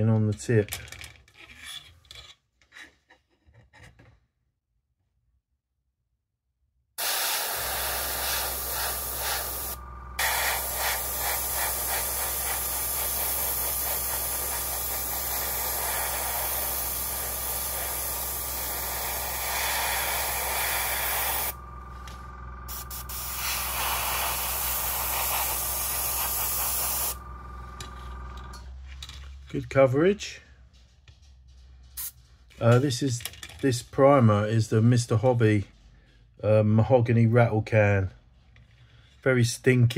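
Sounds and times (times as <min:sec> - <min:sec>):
airbrush hissing: 0:07.0 - 0:27.3
low hum: 0:07.7 - 0:15.6, 0:17.1 - 0:29.7.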